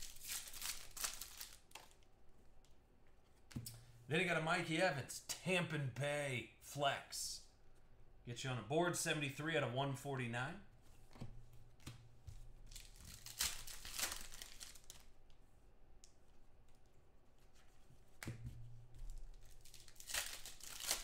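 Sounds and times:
card packaging crinkling: 0.0s - 2.1s, 12.7s - 15.1s, 19.1s - 21.0s.

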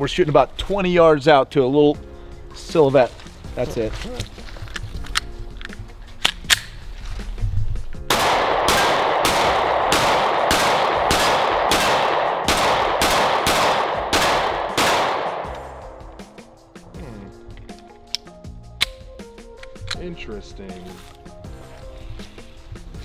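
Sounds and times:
pistol shots echoing: 8.1s - 16.0s.

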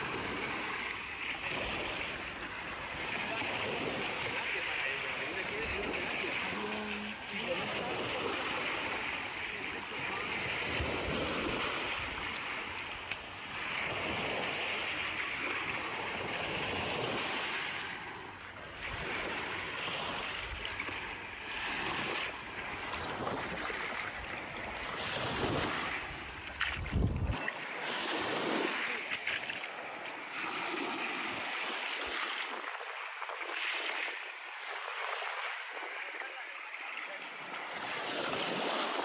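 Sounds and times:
waves washing onto beach: 0.0s - 39.0s
wind buffeting microphone: 26.5s - 27.5s.

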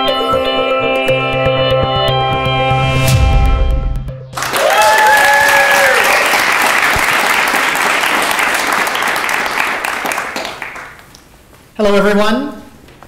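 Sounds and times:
person cheering: 4.4s - 6.4s
audience applauding: 4.4s - 11.1s.

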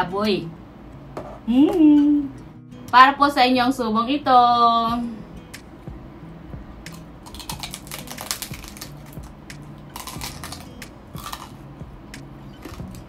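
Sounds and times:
crunchy chewing: 6.9s - 11.6s, 12.6s - 13.0s.

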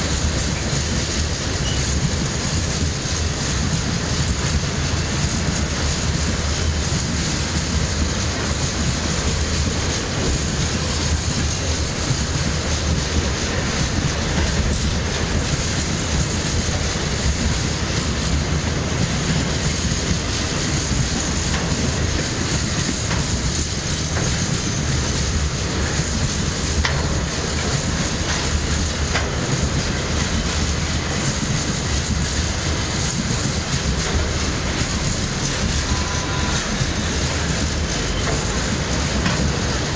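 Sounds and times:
train wheels rumbling on rail: 0.0s - 39.9s.

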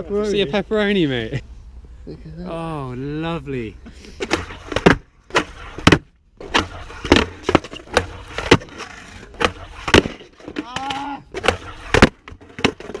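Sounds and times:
skateboard wheels rolling on concrete: 3.1s - 13.0s
skateboard tail clacks: 4.2s - 13.0s.

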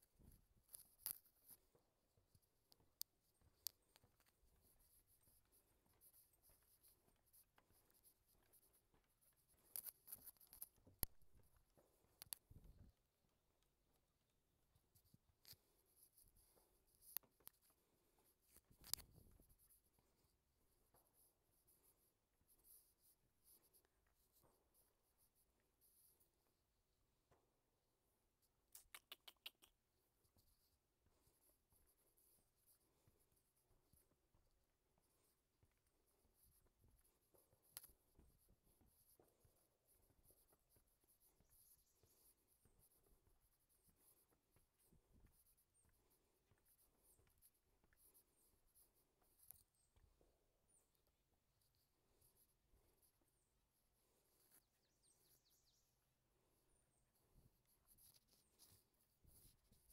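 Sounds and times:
faint soft ticks: 0.0s - 13.0s, 14.8s - 22.0s.

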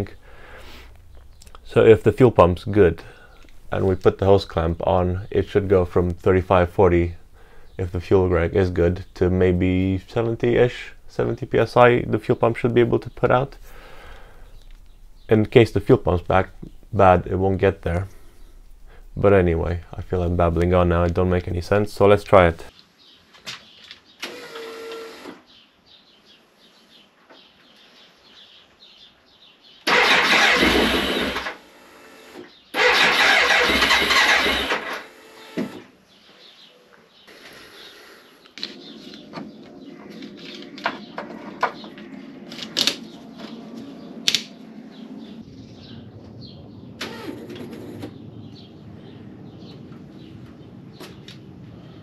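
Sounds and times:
steady low hum: 0.0s - 22.7s, 37.4s - 52.0s
fuel pump whine: 29.9s - 32.1s, 32.8s - 35.8s.

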